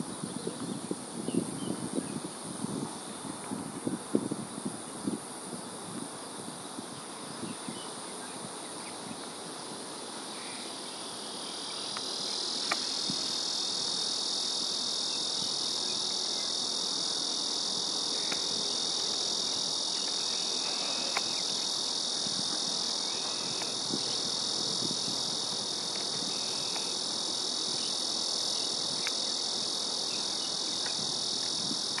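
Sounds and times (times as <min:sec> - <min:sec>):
insects buzzing: 0:00.0 - 0:32.0
faint ticks: 0:11.9 - 0:12.9, 0:18.2 - 0:18.5, 0:19.9 - 0:21.5, 0:23.6 - 0:23.8, 0:25.9 - 0:26.9, 0:29.0 - 0:29.2, 0:30.8 - 0:32.0.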